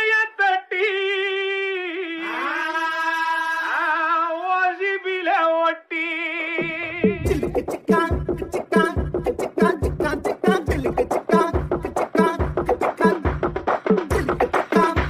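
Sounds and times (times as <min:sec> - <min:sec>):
person singing solo: 0:00.0 - 0:11.6.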